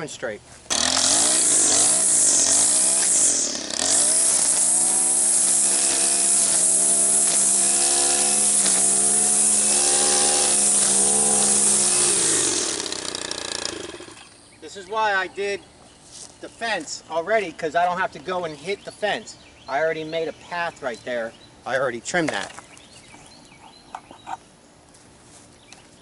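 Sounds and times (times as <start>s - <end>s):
string trimmer cutting grass: 0.7s - 14.5s.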